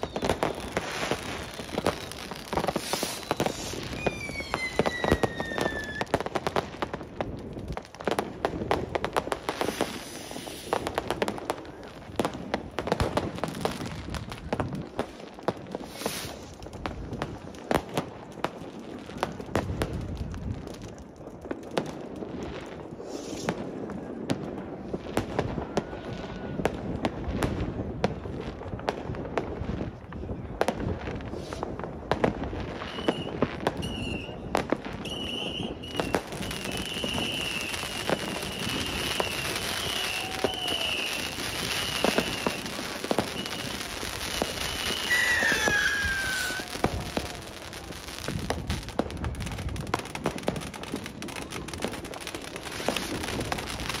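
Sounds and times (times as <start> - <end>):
firework whistle gliding down: 0.0 - 6.2, 32.7 - 49.6
fireworks bangs and crackles: 0.0 - 54.0
high wavering whistle: 2.9 - 6.0, 32.9 - 34.4, 35.0 - 43.8, 44.6 - 46.8.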